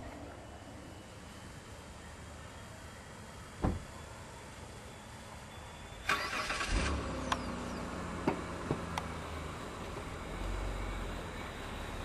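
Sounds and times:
sharp thump: 0:03.6 - 0:03.8.

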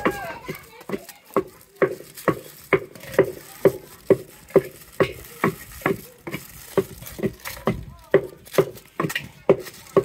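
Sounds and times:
rhythmic knocking of food preparation: 0:00.0 - 0:10.0.

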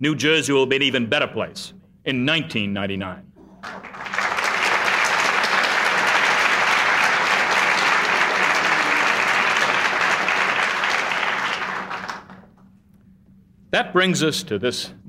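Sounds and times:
crowd applauding: 0:03.5 - 0:12.6.

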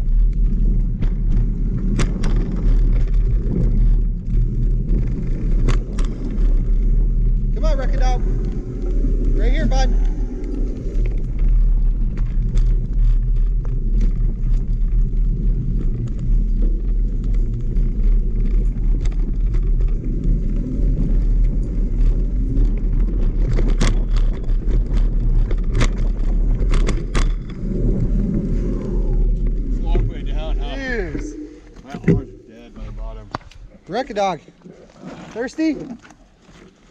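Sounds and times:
bike knocking over bumps: 0:00.0 - 0:08.8, 0:11.1 - 0:30.1
wind noise on microphone: 0:00.0 - 0:33.8
tyre noise on dirt: 0:00.0 - 0:36.9.

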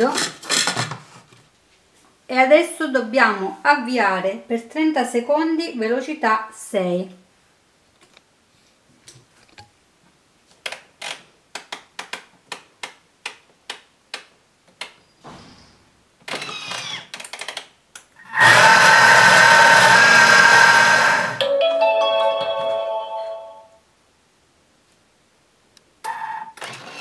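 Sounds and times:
food processor motor whining: 0:18.2 - 0:21.4.

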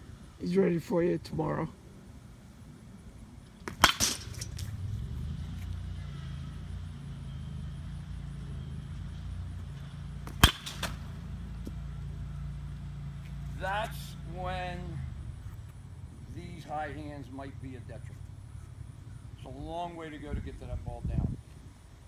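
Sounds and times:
low engine-like hum: 0:00.0 - 0:22.0
bat cracking ball: 0:03.6 - 0:04.9, 0:09.7 - 0:11.8.

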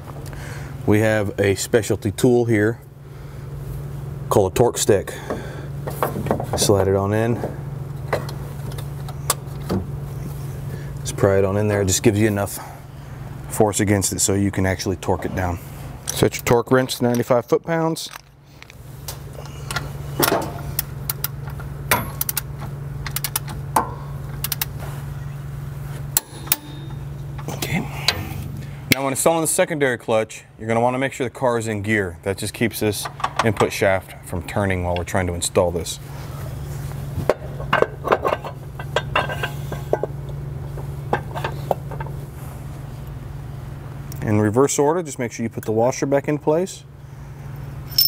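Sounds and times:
steady low hum: 0:00.0 - 0:48.0
metal clinks and knocks: 0:37.3 - 0:40.2.

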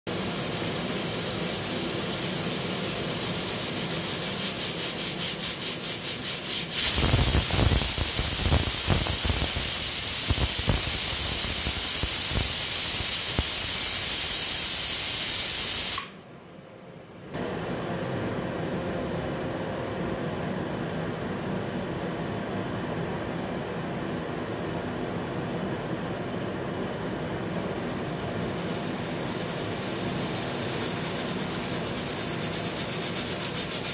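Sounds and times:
steam hissing: 0:00.1 - 0:16.2, 0:27.8 - 0:33.9
pressure cooker steam whistle: 0:04.8 - 0:16.2.

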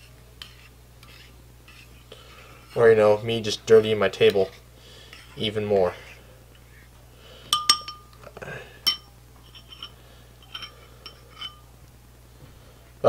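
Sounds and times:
metal spoon clinking on glass bowl: 0:07.5 - 0:08.2, 0:08.8 - 0:11.6.

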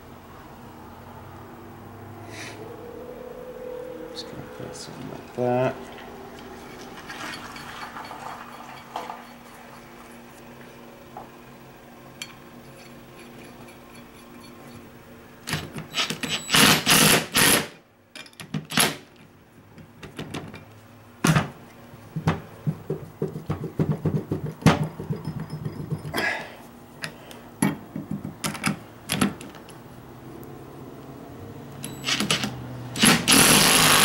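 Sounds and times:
faint steady hum: 0:00.0 - 0:32.1
metal tools clattering on workbench: 0:25.0 - 0:26.2.

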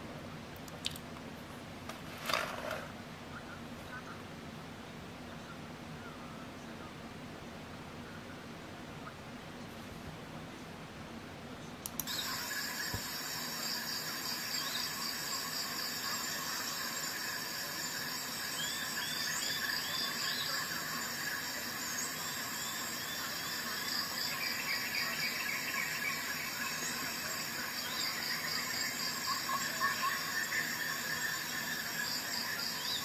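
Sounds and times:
high-pitched chirring and chirps: 0:12.0 - 0:33.0.

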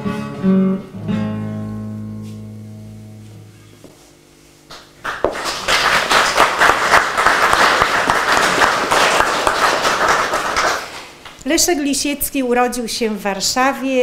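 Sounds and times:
audience applauding: 0:04.7 - 0:11.2.

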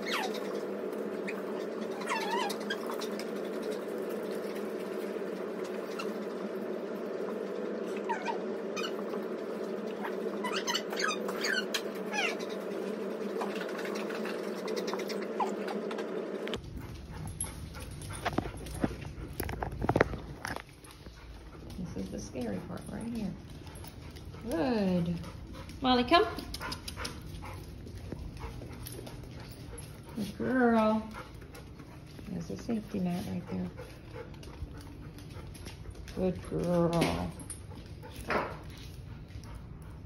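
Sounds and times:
dog whimpering: 0:00.0 - 0:03.8, 0:07.9 - 0:09.2, 0:09.9 - 0:16.1.

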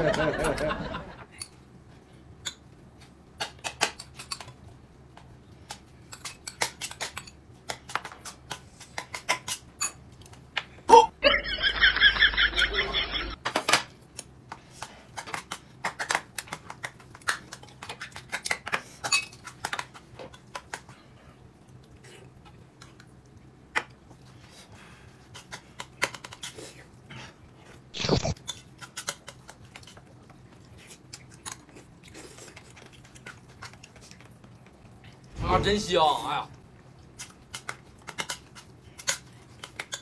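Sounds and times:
close chewing: 0:19.4 - 0:35.3.

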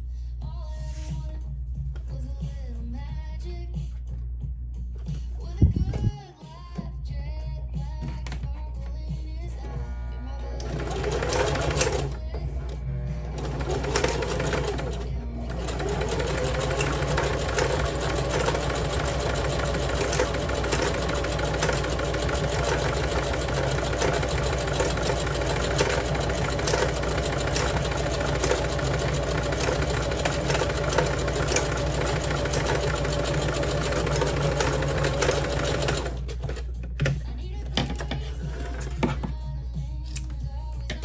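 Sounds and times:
sewing machine running: 0:10.6 - 0:36.4.

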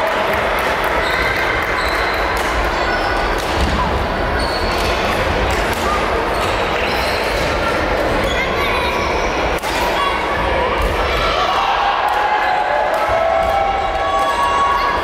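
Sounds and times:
shoe squeaks on court: 0:04.4 - 0:05.2.

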